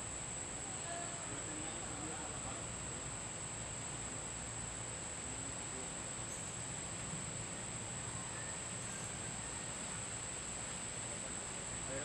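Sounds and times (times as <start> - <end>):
faint outdoor hiss: 0.0 - 12.0
insects trilling: 6.1 - 6.8, 7.4 - 12.0.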